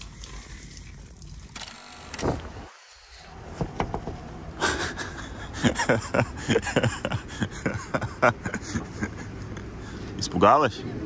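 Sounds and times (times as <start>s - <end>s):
knocking on window glass: 3.6s - 4.2s.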